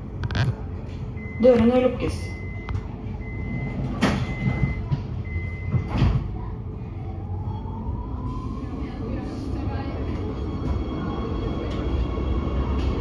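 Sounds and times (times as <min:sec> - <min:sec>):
door-closing warning beeps: 0:01.2 - 0:06.2.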